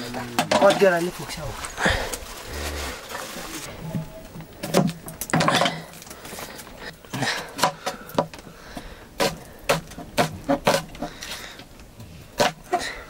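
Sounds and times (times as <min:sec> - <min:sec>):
metal pots and utensils clattering: 0:00.0 - 0:02.0, 0:03.2 - 0:06.3.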